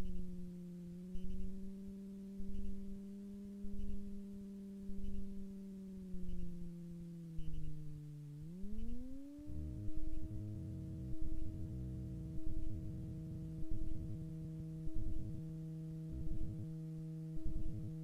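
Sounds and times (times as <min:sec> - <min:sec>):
aircraft engine droning: 0:05.0 - 0:18.0.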